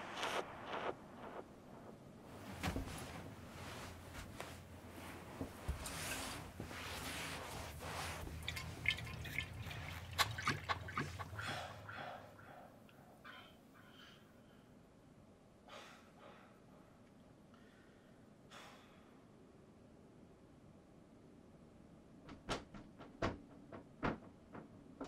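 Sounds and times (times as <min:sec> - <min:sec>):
low steady hum: 0:00.0 - 0:15.6
liquid sloshing in bottle: 0:08.2 - 0:11.8.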